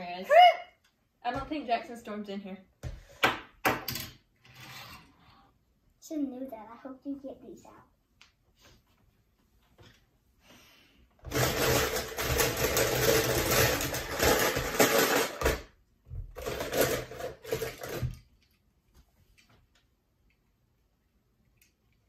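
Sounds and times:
toy cars clattering in plastic bowl: 11.3s - 15.7s, 16.3s - 18.4s.

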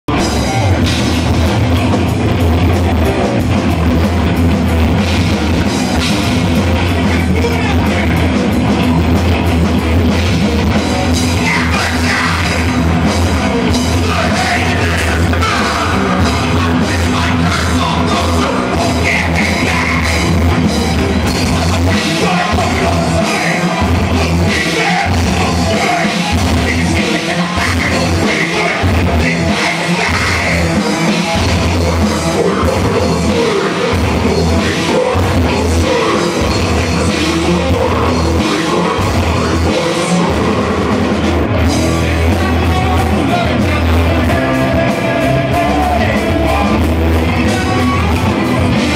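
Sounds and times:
rock band playing: 0.0s - 48.9s
person singing: 10.2s - 48.9s.

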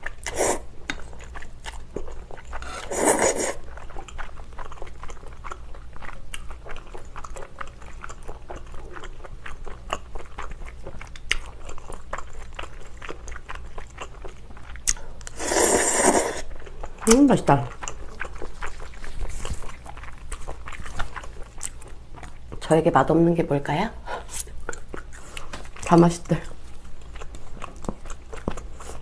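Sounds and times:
wet chewing: 0.0s - 22.7s, 24.3s - 29.0s
noodle slurp: 0.2s - 0.7s, 2.6s - 3.6s, 15.3s - 16.5s.

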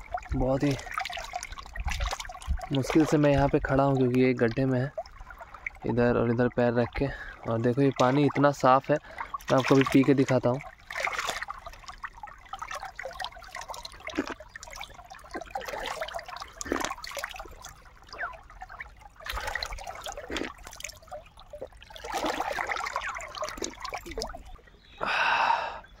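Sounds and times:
water trickling and splashing: 0.0s - 25.6s.

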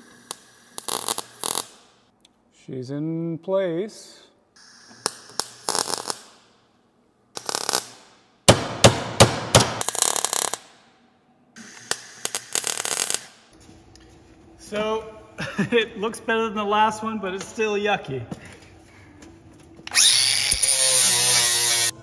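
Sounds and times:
welding arc crackling: 0.0s - 2.0s, 4.6s - 6.5s, 7.4s - 8.2s, 8.9s - 10.8s, 11.6s - 13.5s, 20.0s - 22.0s.

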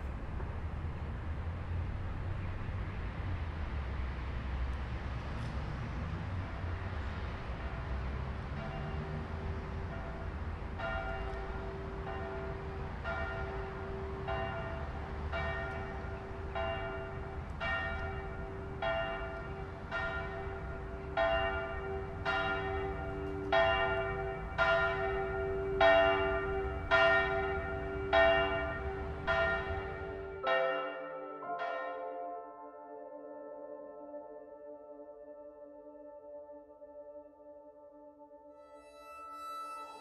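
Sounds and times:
church bell tolling: 7.6s - 37.1s
sustained musical tones: 38.5s - 40.0s.

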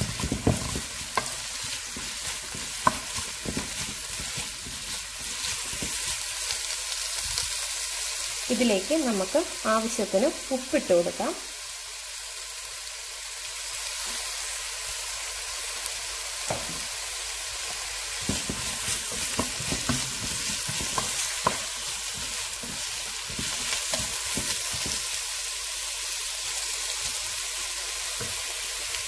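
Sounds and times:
wooden spatula scraping a pan: 0.0s - 6.5s, 18.1s - 25.2s
onions sizzling in hot oil: 0.0s - 29.0s.

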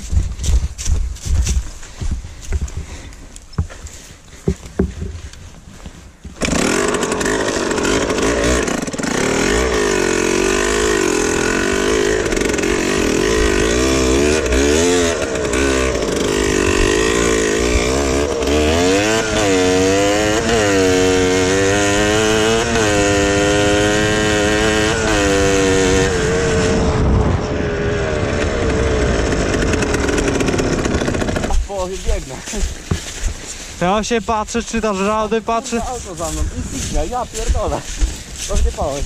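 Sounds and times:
knocks: 4.4s - 5.2s
two-stroke motorcycle engine revving: 6.4s - 31.9s.

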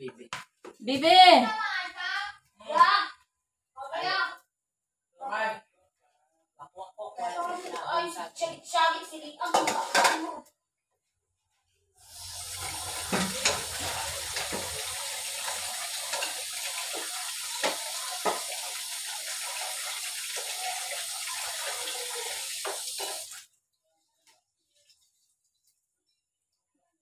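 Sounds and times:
tap water running into sink: 12.1s - 23.4s.

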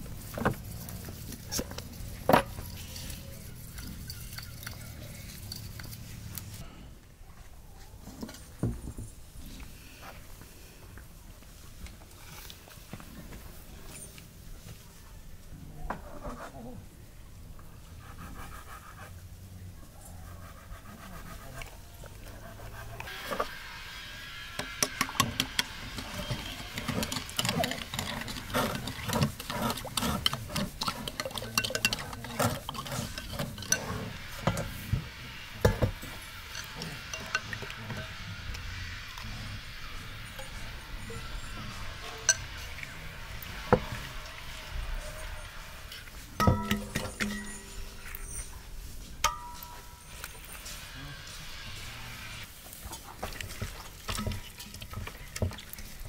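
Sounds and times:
metal spoon stirring in ceramic bowl: 1.3s - 6.6s, 24.6s - 34.9s, 35.7s - 38.2s, 40.3s - 42.8s, 46.4s - 48.4s.

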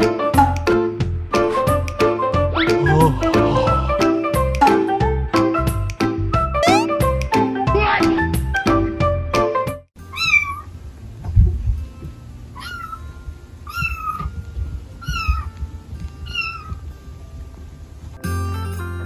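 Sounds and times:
music: 0.0s - 19.0s
kitten mewing: 2.6s - 3.8s, 6.6s - 7.0s, 12.6s - 13.0s, 13.7s - 14.3s, 15.0s - 15.5s, 16.3s - 16.8s.

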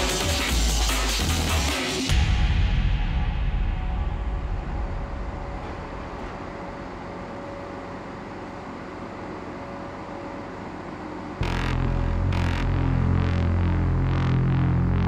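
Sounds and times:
loud low rumble: 2.1s - 9.2s, 11.4s - 15.0s
train rumbling hum: 2.1s - 10.3s.

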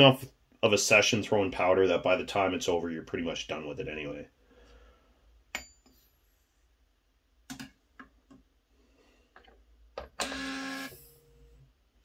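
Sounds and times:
powder dispenser motor whirring: 10.0s - 11.6s.

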